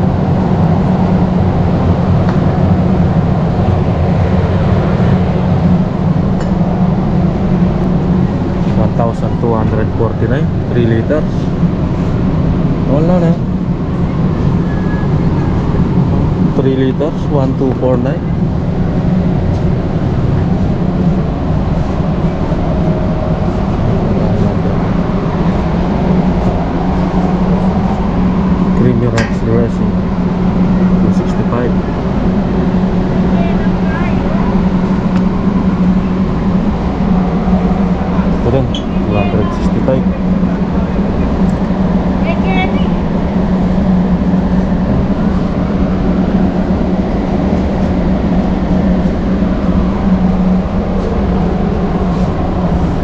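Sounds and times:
warehouse store background rumble: 28.6s - 30.2s.

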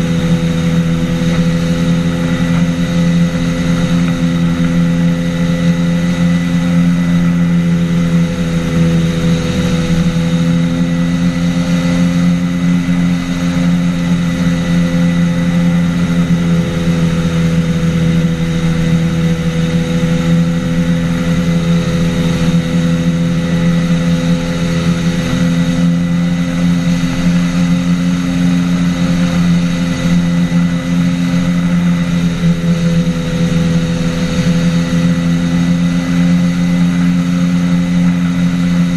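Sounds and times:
microlight engine and propeller drone: 0.0s - 38.9s.

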